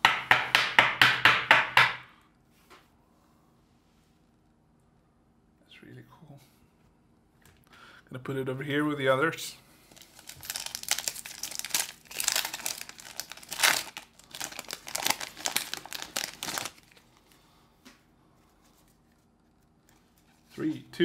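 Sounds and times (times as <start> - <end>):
wrapper crinkling and tearing: 9.9 - 17.4.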